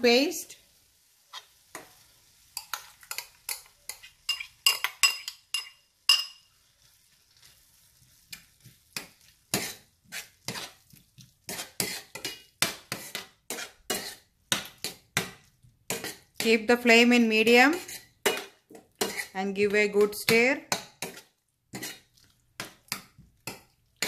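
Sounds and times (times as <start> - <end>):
spoon stirring paste: 1.3 - 24.0
metal spoon scraping a bowl: 2.6 - 6.4, 8.4 - 10.8, 11.5 - 16.6, 17.4 - 19.4, 20.3 - 23.6
spoon clinking on metal pan: 2.6 - 6.5, 17.7 - 19.3.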